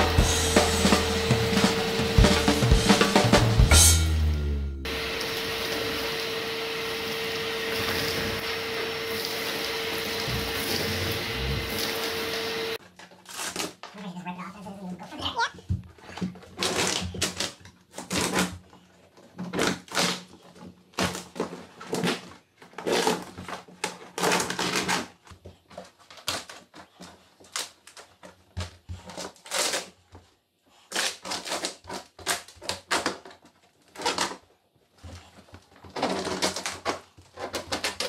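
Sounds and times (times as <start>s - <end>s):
linoleum tearing from floor: 4.9s - 13.9s, 16.2s - 25.2s, 28.9s - 30.0s, 30.8s - 34.4s, 35.2s - 38.0s.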